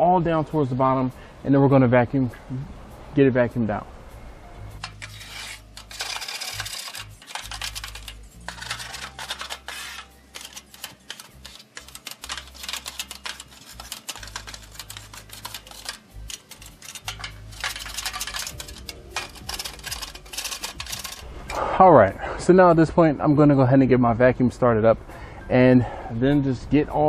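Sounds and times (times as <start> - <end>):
hand scraper scraping grease: 4.8 - 21.2.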